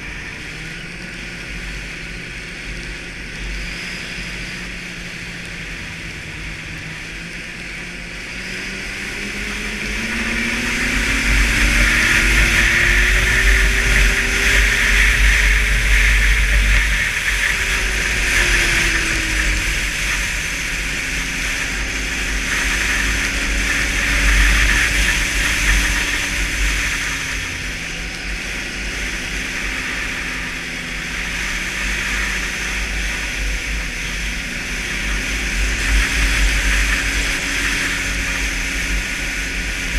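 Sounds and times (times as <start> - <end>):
snowmobile engine: 0.0 - 39.9
loud rushing noise: 8.2 - 39.9.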